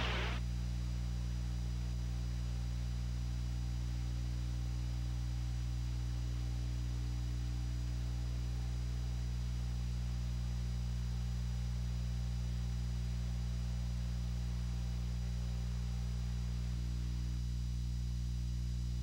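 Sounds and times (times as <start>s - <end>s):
mains hum with high whine: 0.0s - 19.0s.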